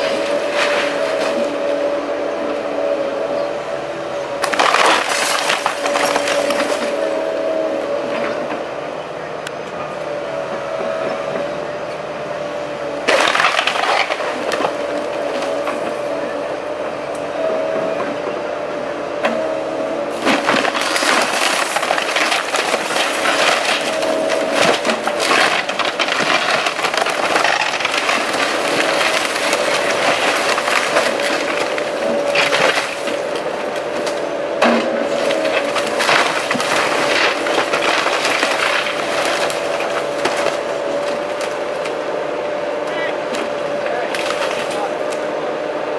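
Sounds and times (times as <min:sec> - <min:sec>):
excavator drone: 0:00.0 - 0:45.9
timber cracking and crashing down: 0:04.4 - 0:07.2, 0:13.0 - 0:16.0, 0:20.1 - 0:42.0, 0:43.4 - 0:45.2.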